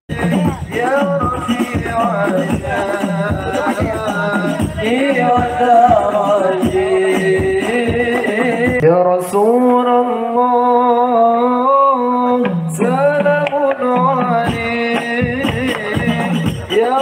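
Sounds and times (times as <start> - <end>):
hand drums beating: 0.1 - 8.8, 12.4 - 17.0
person singing devotional melody: 0.1 - 17.0.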